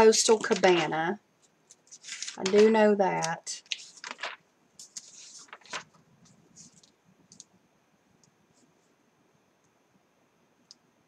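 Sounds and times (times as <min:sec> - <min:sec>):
paper sheets rustling: 0:00.0 - 0:01.0, 0:01.7 - 0:07.0.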